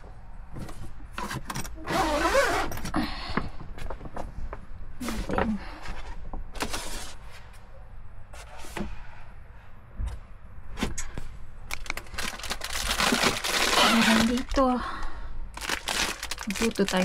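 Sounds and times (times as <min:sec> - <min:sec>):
plastic packaging crinkling: 0:11.7 - 0:14.8, 0:15.5 - 0:17.0.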